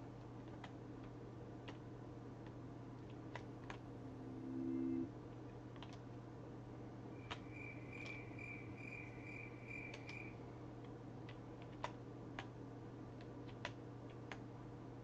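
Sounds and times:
low electrical hum: 0:00.0 - 0:15.0
computer keyboard clicks: 0:00.4 - 0:01.8, 0:02.4 - 0:03.8, 0:05.7 - 0:06.1, 0:09.8 - 0:12.6, 0:13.2 - 0:14.5
faint high pulsing chirp: 0:04.1 - 0:05.1, 0:07.1 - 0:10.4.

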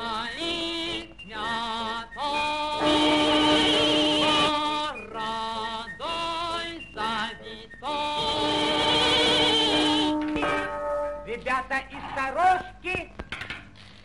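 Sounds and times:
singing with long wavering notes: 0:00.0 - 0:12.3
instrumental accompaniment: 0:00.8 - 0:11.7.

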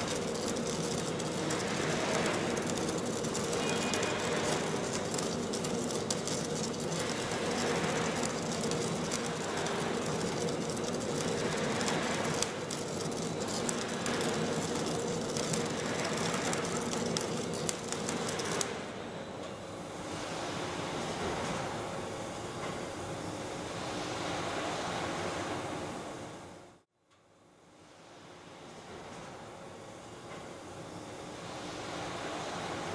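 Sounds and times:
welding crackling and spitting: 0:00.0 - 0:18.8
machine hum: 0:00.0 - 0:26.1.

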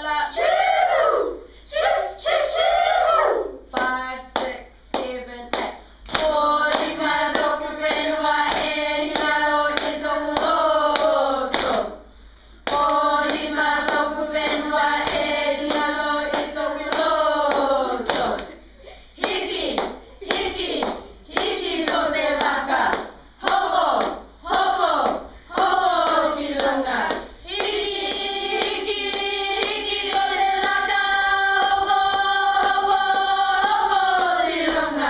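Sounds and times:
hand clapping: 0:03.7 - 0:11.9, 0:12.6 - 0:18.6, 0:19.2 - 0:35.0
children singing in unison: 0:06.2 - 0:12.0, 0:12.7 - 0:18.4, 0:21.4 - 0:35.0.

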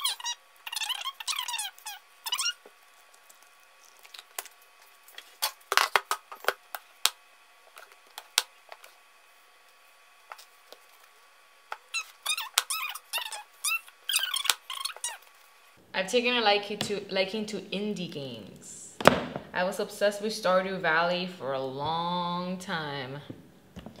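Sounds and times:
soap squeaking on plastic: 0:00.0 - 0:06.1, 0:10.3 - 0:15.4.

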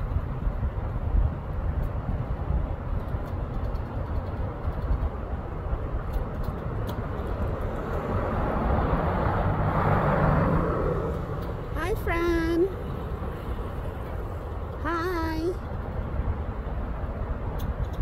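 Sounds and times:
road traffic rumble: 0:00.0 - 0:18.0
vehicle approaching: 0:04.5 - 0:14.8.

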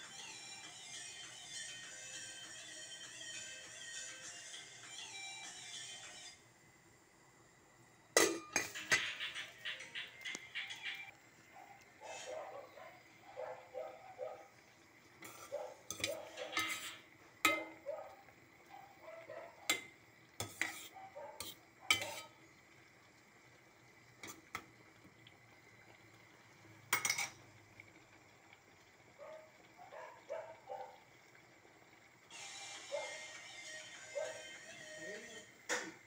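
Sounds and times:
metal spoon clinking in steel pot: 0:15.3 - 0:17.8, 0:27.0 - 0:27.4.

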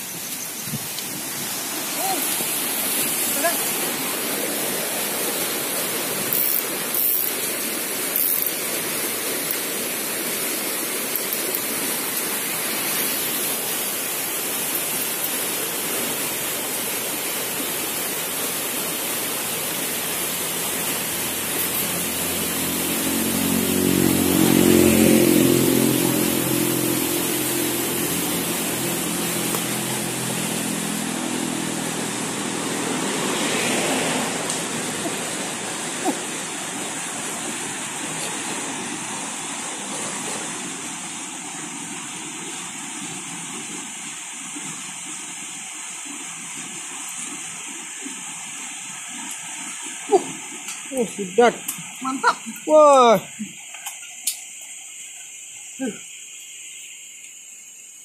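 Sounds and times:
river water rushing: 0:00.0 - 0:58.0
passing vehicle engine: 0:20.4 - 0:40.2.

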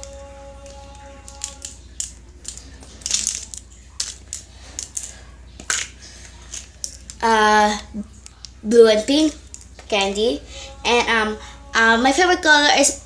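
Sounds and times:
crinkling rustle: 0:00.0 - 0:07.3
plastic capsule clicks and rattles: 0:00.6 - 0:05.9.

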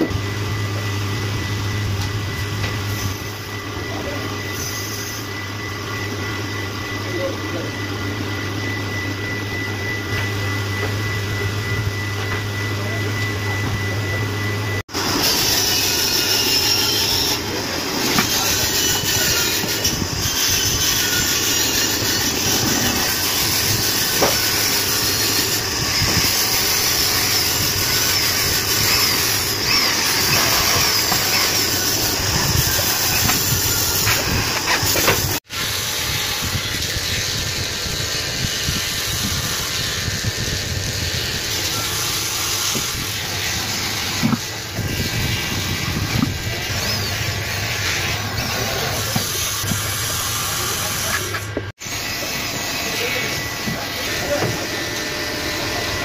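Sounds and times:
workshop machine noise: 0:00.0 - 0:56.0
electric drill boring into wood: 0:15.0 - 0:56.0.

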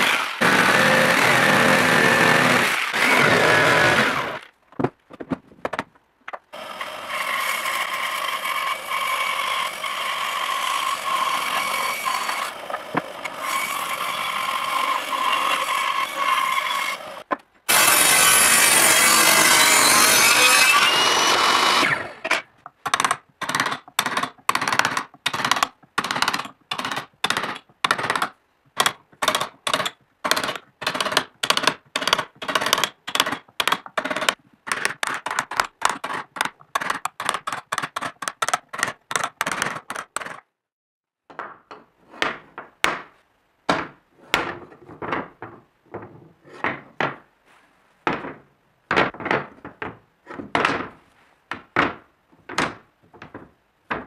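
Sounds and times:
power tool running: 0:00.0 - 0:04.4
table saw cutting wood: 0:00.0 - 0:04.4, 0:06.6 - 0:22.4.

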